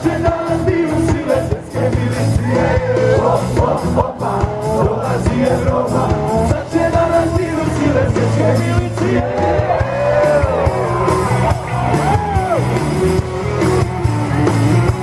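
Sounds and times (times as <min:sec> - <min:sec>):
man singing: 0:00.0 - 0:10.4
bass guitar: 0:00.0 - 0:15.0
drum beat: 0:00.0 - 0:15.0
electric guitars: 0:00.0 - 0:15.0.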